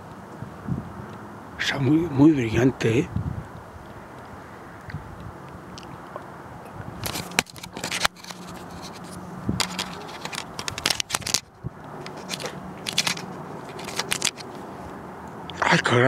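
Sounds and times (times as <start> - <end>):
hands handling camcorder: 7.0 - 14.6.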